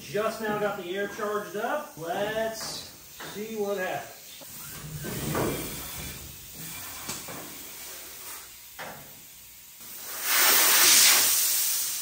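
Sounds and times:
air suspension hissing: 9.9 - 12.0.

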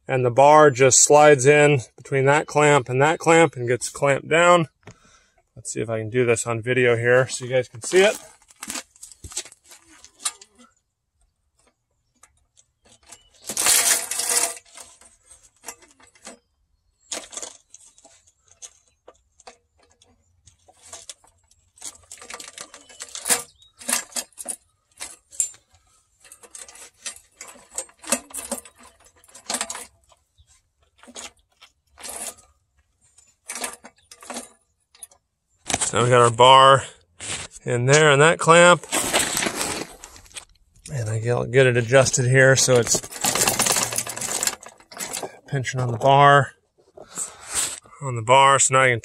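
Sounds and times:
metal clinks and scrapes: 6.8 - 10.8, 11.6 - 47.8.

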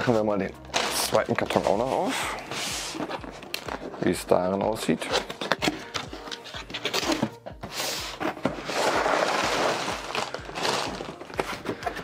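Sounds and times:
background music: 0.0 - 12.0
plastic bags crinkling: 8.6 - 12.0.

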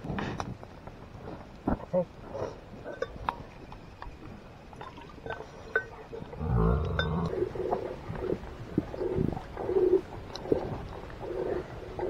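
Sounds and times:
cattle lowing: 6.2 - 12.0.

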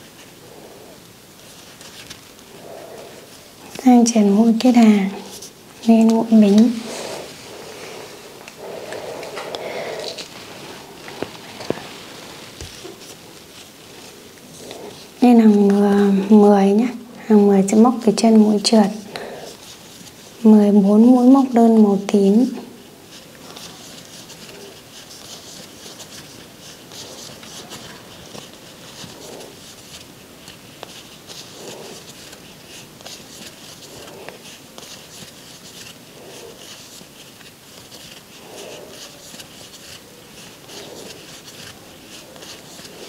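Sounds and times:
soft swish of yarn: 0.0 - 17.0
crochet hook and yarn rustling: 0.0 - 43.0.

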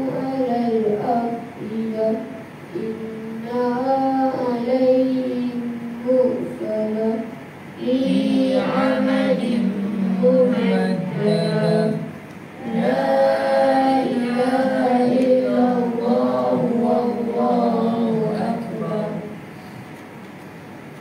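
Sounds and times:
children chanting in unison: 7.8 - 19.3.

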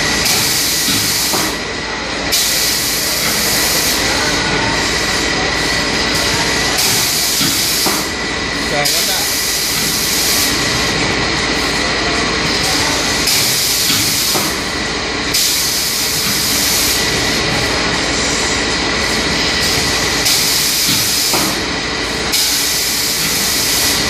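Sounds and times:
paper cup machine running: 0.0 - 24.0
pneumatic air hiss: 0.2 - 1.6, 6.8 - 8.1, 8.9 - 10.6, 13.2 - 14.6, 15.3 - 17.0, 20.2 - 21.6, 22.3 - 24.0.

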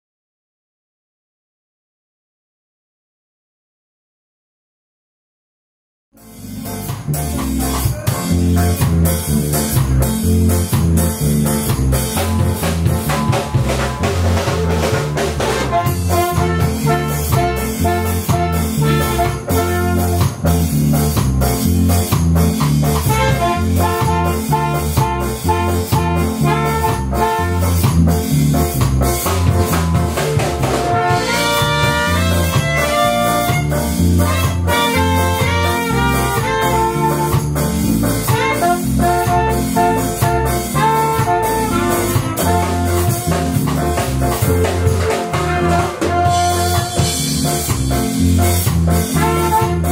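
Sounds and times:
drum kit beat: 6.2 - 49.9
saxophone and trumpet playing: 12.4 - 20.8, 23.0 - 28.6, 30.2 - 48.2, 48.9 - 49.9.

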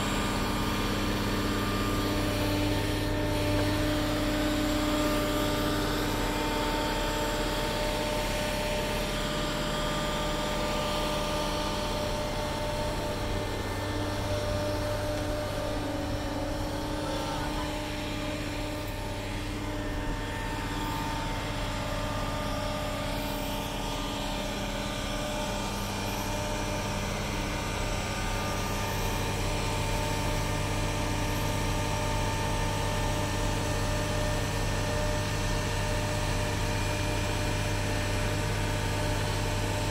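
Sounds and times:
diesel crane engine running: 0.0 - 39.9.

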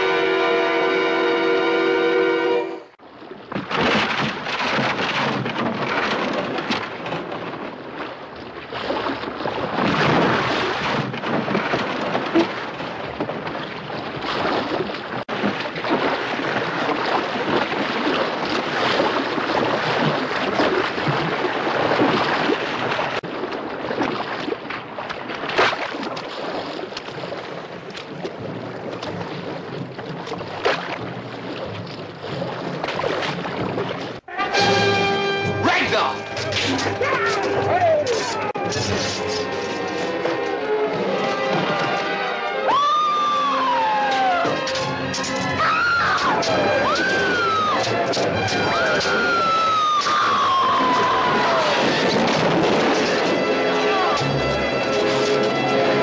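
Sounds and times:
rough sea: 0.0 - 56.0
music: 34.3 - 49.4, 53.0 - 56.0
storm wind: 42.7 - 54.9.

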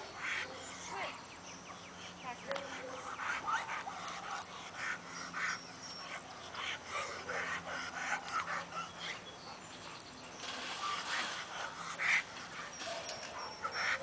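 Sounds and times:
dogs barking: 2.4 - 9.7, 10.4 - 14.0
dogs whining: 2.8 - 14.0.

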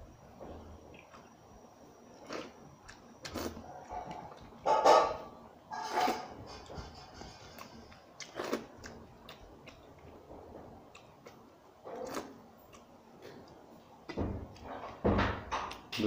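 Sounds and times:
wet mouth eating sounds: 2.2 - 4.5, 7.6 - 10.1, 10.9 - 13.6
faint chewing: 2.2 - 4.6, 5.9 - 14.7.

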